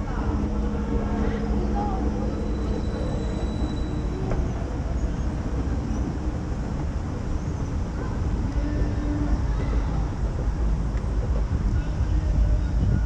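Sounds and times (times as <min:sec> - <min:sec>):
low rumble of city street noise: 0:00.0 - 0:13.0.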